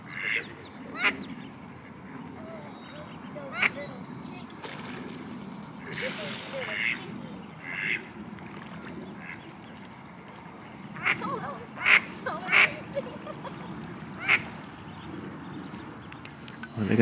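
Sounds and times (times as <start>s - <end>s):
duck quacking: 0.1s - 1.2s, 6.6s - 8.1s, 11.8s - 12.8s, 14.2s - 14.5s.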